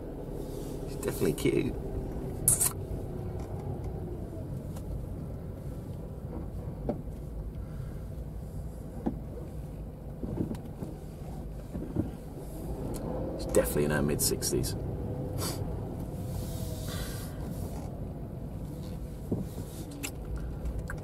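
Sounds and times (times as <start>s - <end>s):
car cabin rumble: 0.0s - 21.0s.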